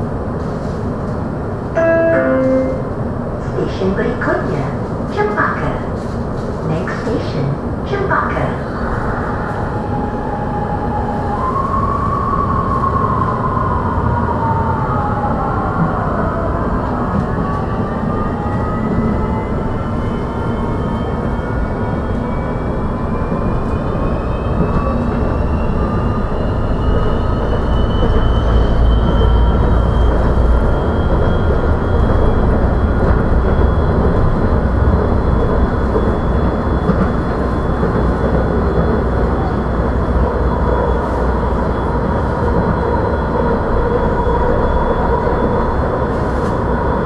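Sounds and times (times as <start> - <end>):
train wheels rumbling on track: 15.4 - 47.0.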